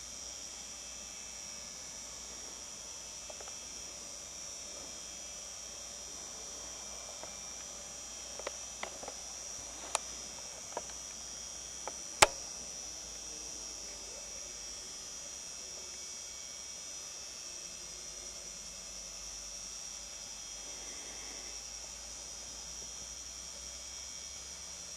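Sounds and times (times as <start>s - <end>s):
crickets chirping: 0.0s - 24.9s
sharp dry clicks: 8.3s - 11.1s, 11.8s - 12.5s.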